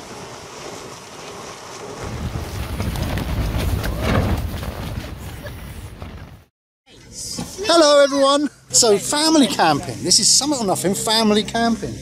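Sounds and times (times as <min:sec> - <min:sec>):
gale wind rushing over tents: 0:00.0 - 0:06.5
low rumble of wind gusts: 0:00.0 - 0:06.5.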